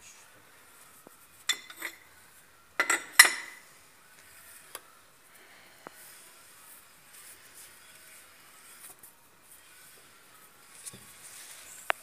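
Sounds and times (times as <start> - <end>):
spanner clinking on metal: 1.5 - 2.0, 2.8 - 3.6.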